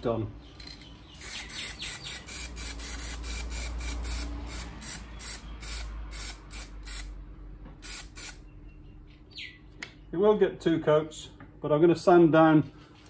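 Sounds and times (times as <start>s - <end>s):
spray can hissing: 1.2s - 7.2s, 7.8s - 8.4s.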